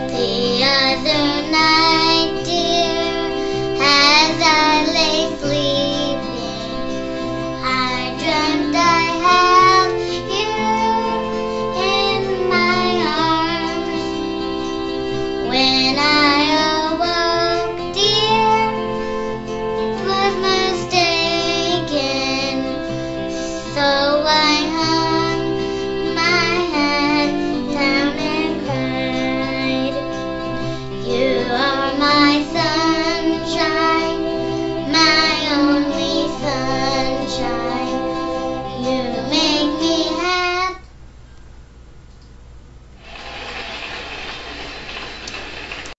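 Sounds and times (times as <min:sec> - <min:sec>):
instrumental accompaniment: 0:00.0 - 0:40.7
high voice singing: 0:07.6 - 0:19.0, 0:19.8 - 0:40.9.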